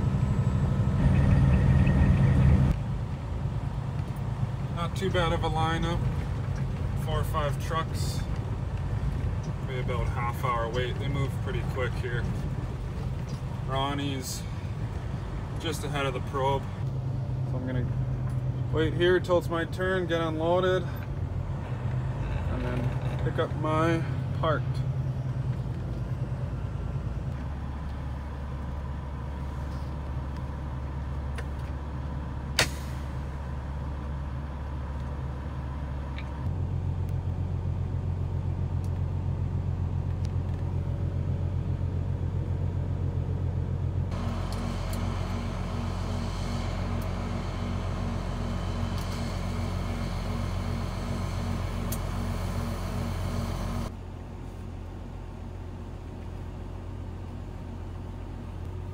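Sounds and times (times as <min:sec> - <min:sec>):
truck diesel engine idling: 0:00.0 - 0:58.9
sharp click: 0:32.6 - 0:32.9.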